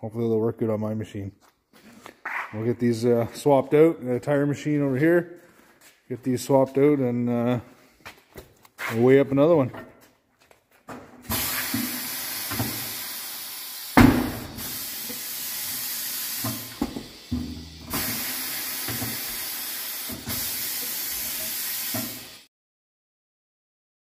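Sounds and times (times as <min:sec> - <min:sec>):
air hissing into tire: 0:11.3 - 0:22.5.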